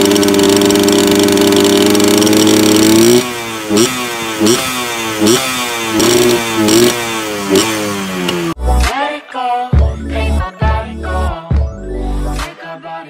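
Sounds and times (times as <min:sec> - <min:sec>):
two-stroke engine revving: 0:00.0 - 0:08.6.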